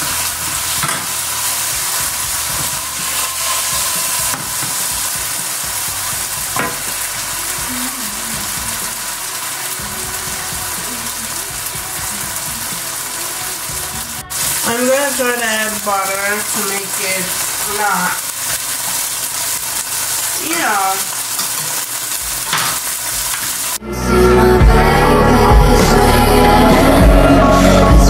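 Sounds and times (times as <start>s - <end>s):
meat sizzling in a frying pan: 0.0s - 23.8s
wooden spoon scraping a pan: 0.1s - 5.4s.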